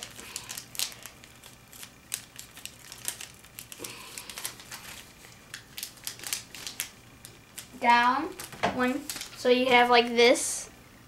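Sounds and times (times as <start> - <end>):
paper being folded and creased: 0.0 - 7.7, 8.3 - 9.4.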